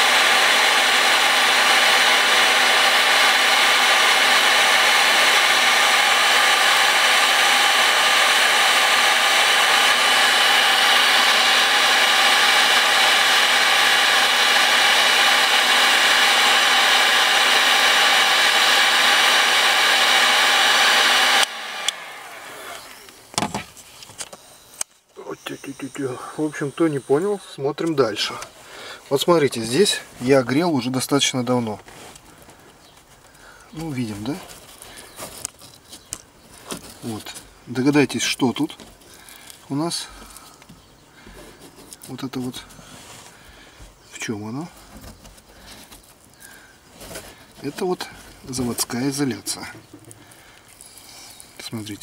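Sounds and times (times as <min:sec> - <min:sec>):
hot-air blower running with whine: 0:00.0 - 0:23.7, 0:45.5 - 0:52.0.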